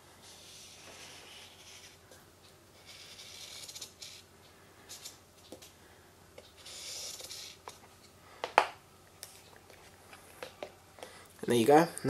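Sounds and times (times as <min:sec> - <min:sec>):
marker scratching: 0:00.2 - 0:02.0, 0:02.8 - 0:04.3, 0:04.9 - 0:05.7, 0:06.6 - 0:07.8.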